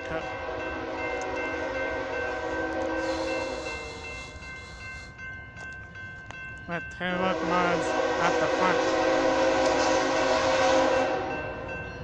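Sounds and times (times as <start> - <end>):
locomotive air horn chord: 0.0 - 4.8, 7.3 - 11.6.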